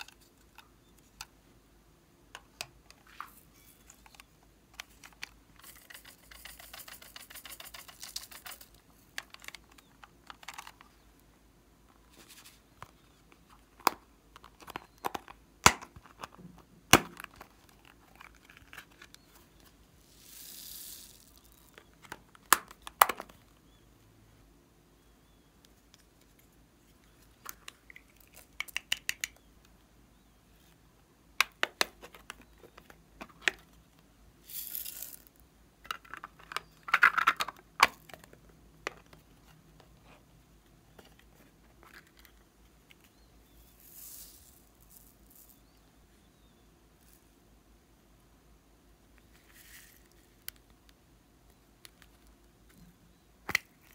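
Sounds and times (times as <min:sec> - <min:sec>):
foam beads pouring: 0:20.0 - 0:21.7, 0:34.4 - 0:35.3, 0:43.8 - 0:45.6.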